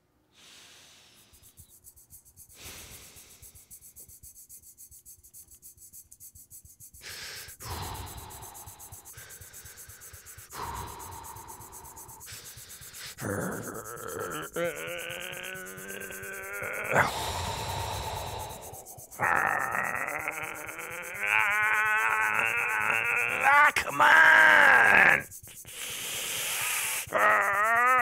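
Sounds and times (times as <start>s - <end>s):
hands rubbing a lamp: 1.1s - 22.8s, 23.4s - 27.7s
strained wavering voice: 7.5s - 25.8s, 26.5s - 28.0s.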